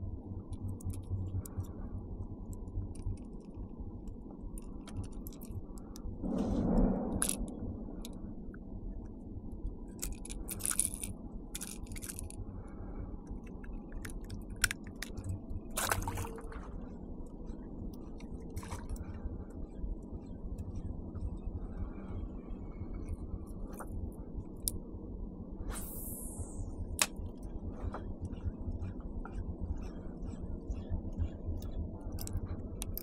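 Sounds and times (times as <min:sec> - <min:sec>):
low steady rumble: 0:00.0 - 0:33.0
fishing tackle clicking and rattling: 0:04.5 - 0:05.9, 0:07.1 - 0:08.2, 0:09.9 - 0:12.5, 0:13.3 - 0:16.6, 0:31.6 - 0:33.0.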